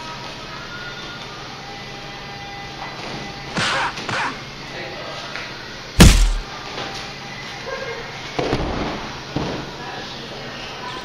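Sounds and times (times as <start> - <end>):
blows while sparring: 3.6 - 4.4, 6.0 - 6.4
heavy thud: 6.0 - 6.4.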